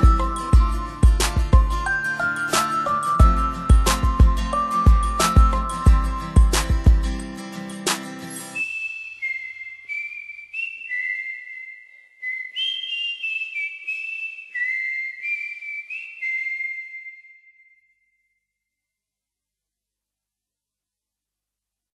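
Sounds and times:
whistled melody: 0.0 - 6.8, 8.4 - 18.4.

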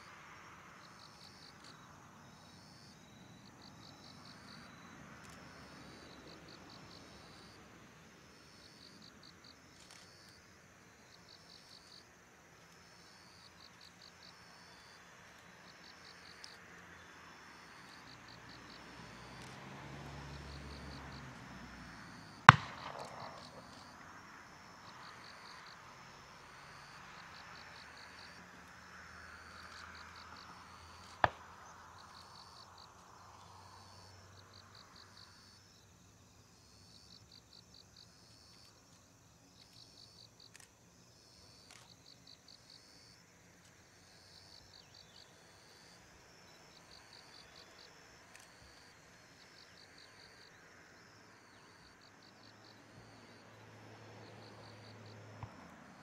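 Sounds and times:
crickets chirping: 0.0 - 56.0
distant jet engines hiss: 12.8 - 32.4.

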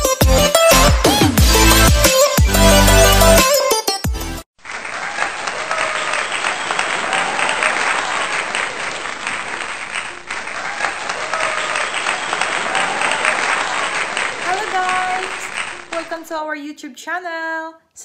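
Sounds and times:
large crowd applauding: 4.6 - 16.3.

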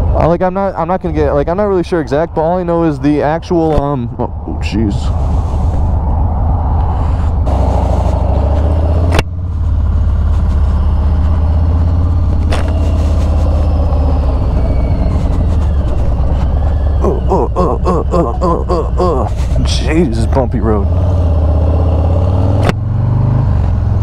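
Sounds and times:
motorcycle engine running: 7.4 - 24.0
sharp click: 22.6 - 22.8.

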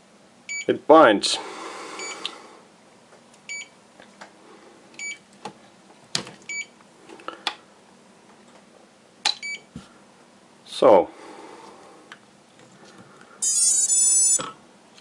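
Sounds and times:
short electronic double beeps: 13.4 - 14.4.

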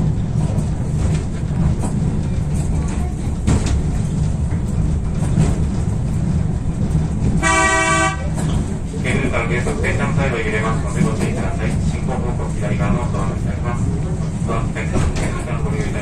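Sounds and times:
funicular car low rumble: 0.0 - 16.0
wheels clicking on rails: 0.0 - 16.0
short horn toot: 7.4 - 8.2.

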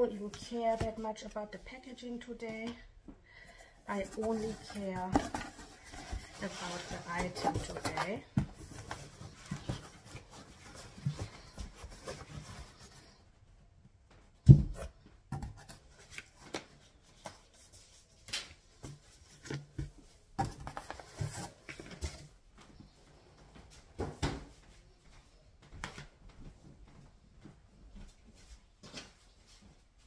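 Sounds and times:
cardboard rustling and scraping: 3.9 - 13.3, 18.9 - 22.3.

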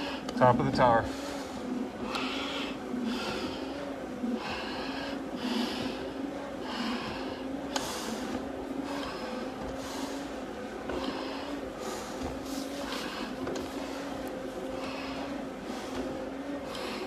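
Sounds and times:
hard breathing through a mask: 0.0 - 0.4, 1.0 - 17.0.

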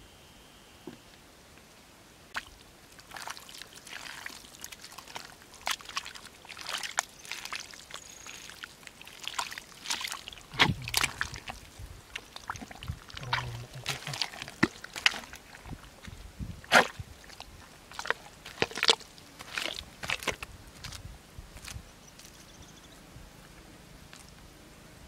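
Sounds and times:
hands squelching in wet mud: 2.4 - 21.0.

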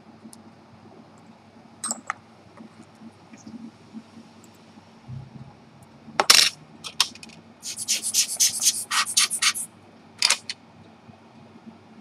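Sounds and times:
latex finger cots rubbing: 7.6 - 10.5.

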